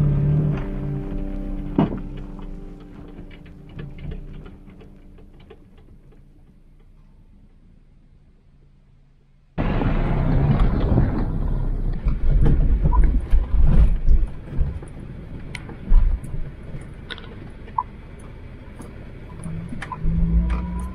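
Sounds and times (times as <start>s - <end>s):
car engine running: 0.0s - 20.9s
driving noise inside car: 0.0s - 20.9s.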